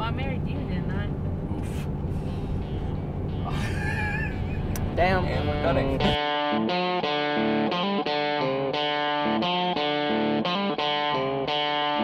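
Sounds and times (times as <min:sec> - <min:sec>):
electric guitar melody: 0:04.3 - 0:12.0.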